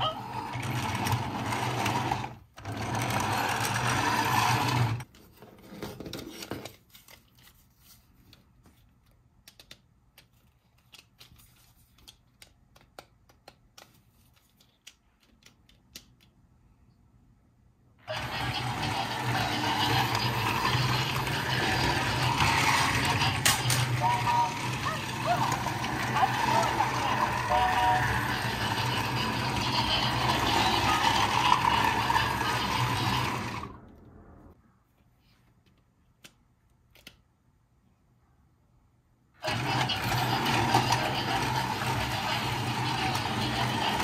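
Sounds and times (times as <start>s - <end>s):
toy train motor whirring: 0.0s - 5.1s, 18.0s - 33.8s, 39.4s - 44.0s.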